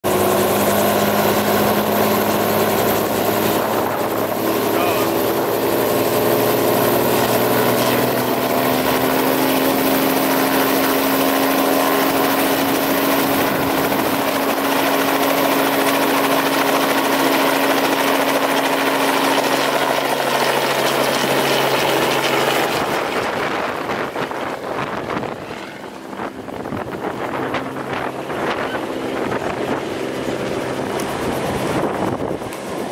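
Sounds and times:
distant helicopter: 0.0 - 32.9
helicopter engine and rotor hum: 0.0 - 32.9
wind noise on microphone: 22.5 - 32.9.

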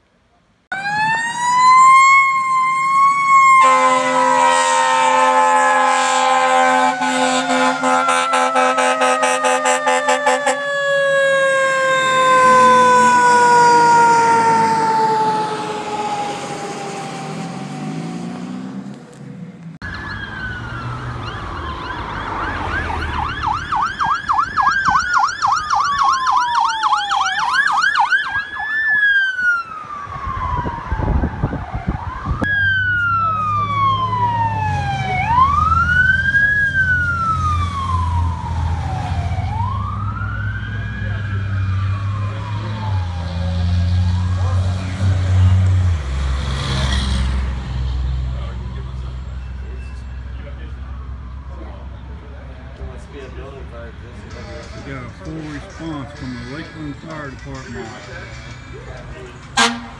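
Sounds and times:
fire engine siren winding: 0.7 - 17.8, 19.8 - 44.5
police electronic siren wailing: 0.7 - 18.4, 19.8 - 45.6, 48.5 - 52.7
air horn blast: 3.6 - 10.6, 59.6 - 59.9.

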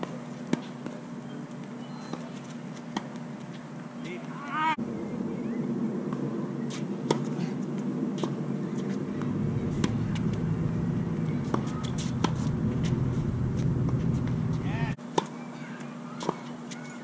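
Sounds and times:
steady low rumble: 4.8 - 7.0, 7.7 - 15.0
tennis ball struck by rackets: 6.1 - 7.4, 8.2 - 15.3.

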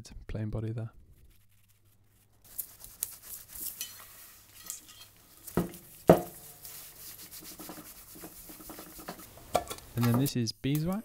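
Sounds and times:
cloth rag rubbing metal: 1.2 - 9.5
newspaper rustling: 1.2 - 10.1.

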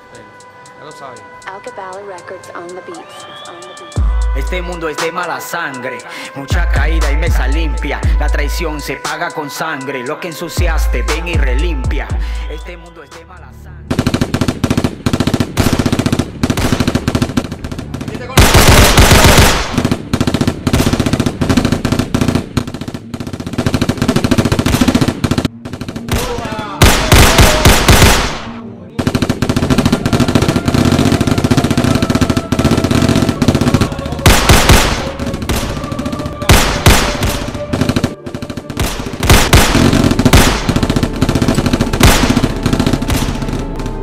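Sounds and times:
automatic gunfire: 13.9 - 44.0.

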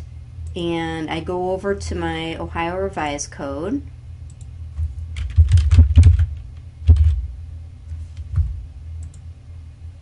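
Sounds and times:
steady low hum: 0.0 - 10.0
typing on keyboard: 5.2 - 7.2.

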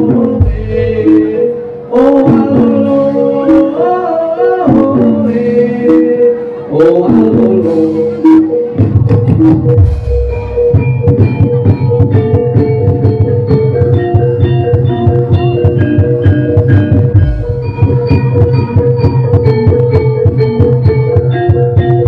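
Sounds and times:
steady low bass: 0.0 - 1.5, 7.2 - 22.0
busy drum pattern: 0.0 - 6.3, 6.9 - 22.0
metallophones playing quick runs: 9.3 - 22.0.

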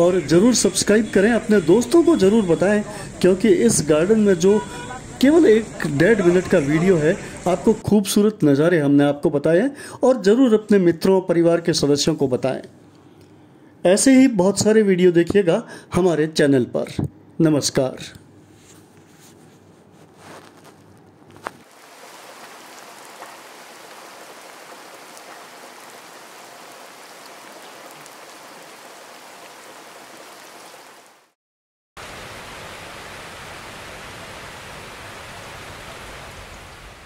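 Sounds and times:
water rushing down cascade: 21.7 - 31.3, 32.0 - 37.0.

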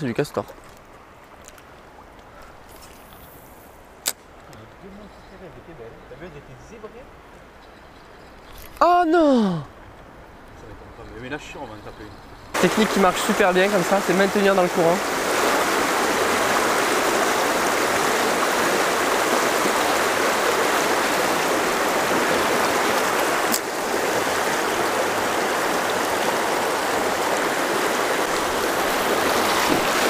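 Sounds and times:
river rushing over rocks: 12.6 - 30.0.

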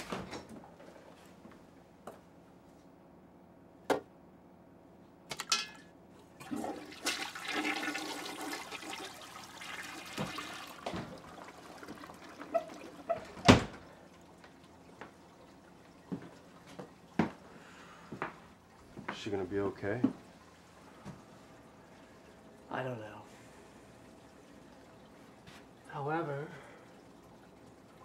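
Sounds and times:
toilet flush water rushing: 6.4 - 17.6, 18.6 - 28.0.

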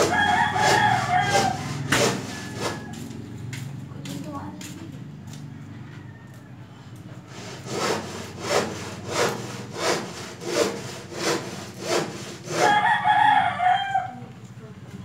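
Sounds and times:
rhythmic sawing: 0.0 - 5.4, 7.1 - 13.3.

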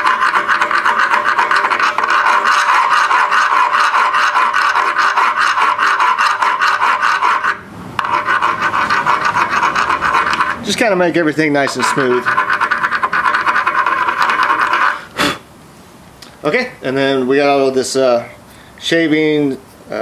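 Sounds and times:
file rasping on metal: 0.0 - 11.0, 11.6 - 15.1.

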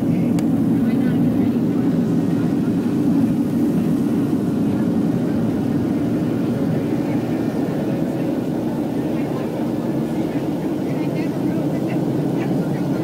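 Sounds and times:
jet engine rumble in airliner cabin: 0.0 - 13.0.

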